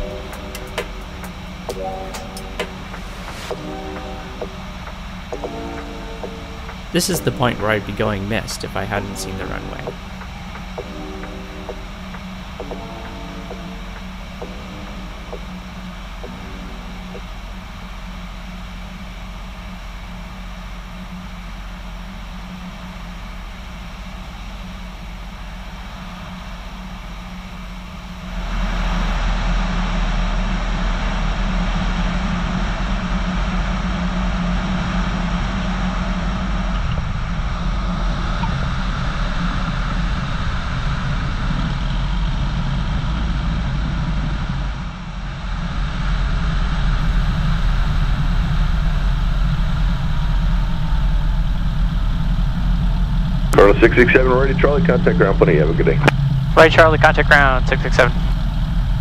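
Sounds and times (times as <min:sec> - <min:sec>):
plane touching down rushing: 0:00.0 - 0:18.3
propeller engine running: 0:00.0 - 0:59.0.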